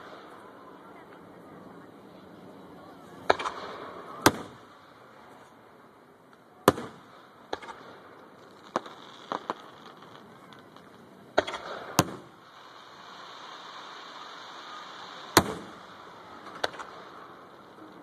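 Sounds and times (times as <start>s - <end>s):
small firework cracks: 2.8s - 18.0s
firework shells bursting: 6.3s - 18.0s.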